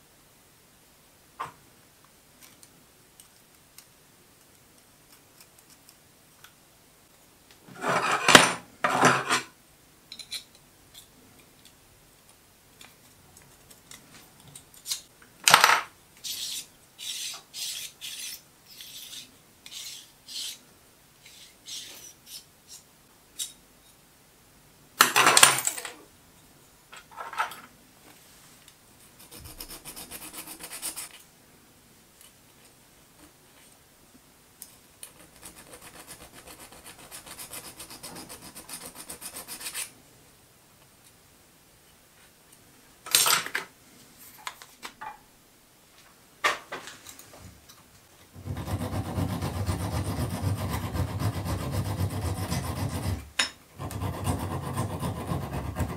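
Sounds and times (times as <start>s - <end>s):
hand tool rasping steel: 48.5s - 53.2s, 53.8s - 55.9s.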